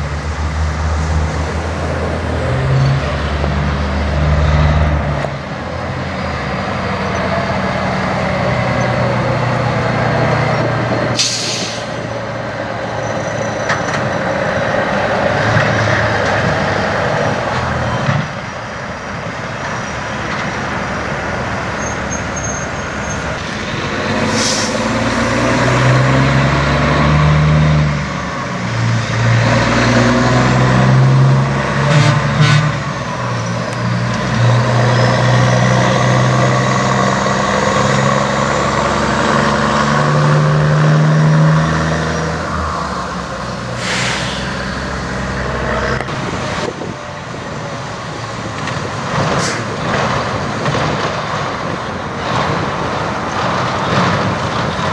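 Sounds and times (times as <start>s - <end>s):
air brake hisses: 11.2s - 12.0s, 24.3s - 24.9s, 43.7s - 44.8s.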